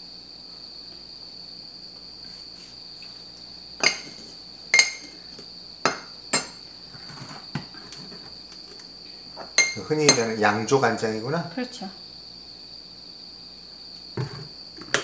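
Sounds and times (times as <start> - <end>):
ladle clinking against glass: 3.8 - 4.2, 4.8 - 5.2, 9.6 - 10.4.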